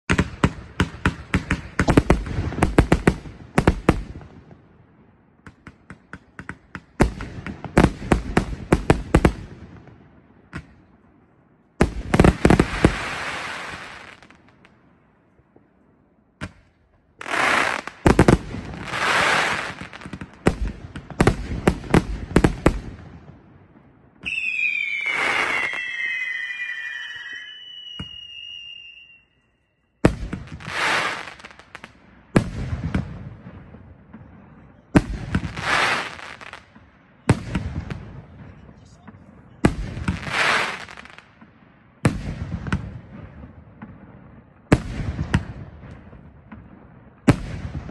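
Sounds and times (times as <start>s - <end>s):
firework hiss: 18.8s - 19.9s, 30.6s - 31.5s
falling firework whistles: 24.2s - 31.6s.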